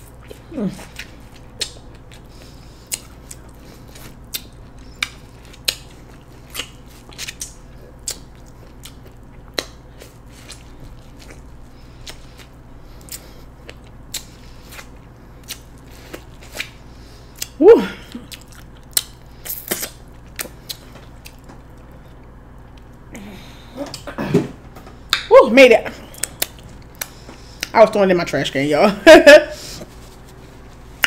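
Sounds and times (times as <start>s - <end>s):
person chewing corn crunches: 0.0s - 23.2s.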